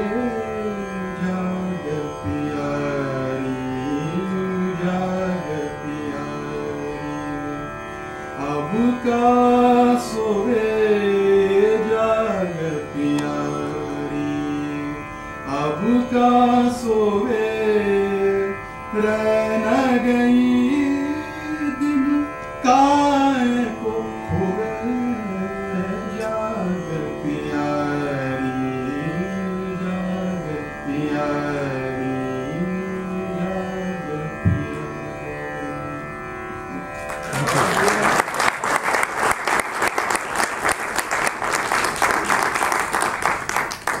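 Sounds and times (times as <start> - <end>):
instrumental drone: 0.0 - 44.0
slow classical singing: 0.0 - 44.0
audience applause: 37.0 - 44.0.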